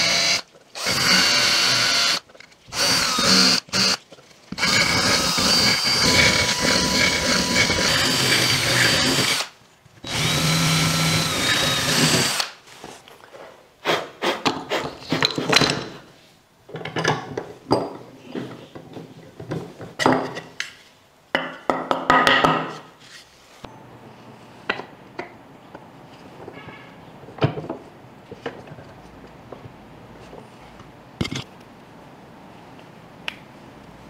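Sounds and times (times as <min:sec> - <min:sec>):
power tool whining: 0:00.0 - 0:09.5, 0:10.1 - 0:12.5
knocks and scraping on wood: 0:14.3 - 0:16.1, 0:31.2 - 0:31.5.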